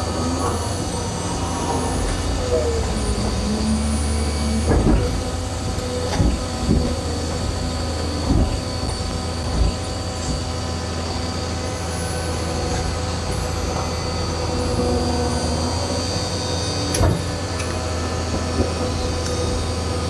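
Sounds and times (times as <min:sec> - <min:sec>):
excavator diesel engine whining: 0:00.0 - 0:20.0
excavator bucket clunking: 0:04.6 - 0:10.5.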